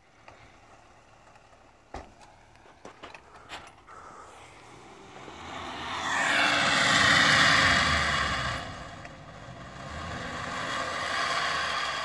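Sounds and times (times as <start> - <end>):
off-road vehicle engine revving: 3.9 - 12.0.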